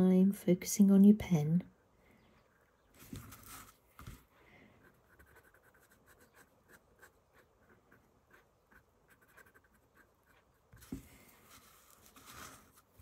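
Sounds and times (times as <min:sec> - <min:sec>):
pen scratching on paper: 0:04.8 - 0:10.9.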